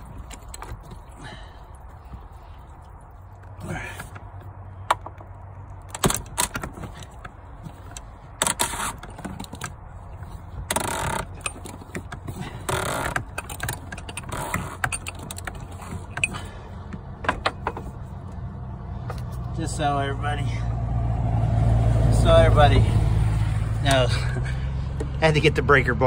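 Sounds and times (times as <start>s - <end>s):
metal clicks and clanks: 0.0s - 1.2s, 3.4s - 18.4s.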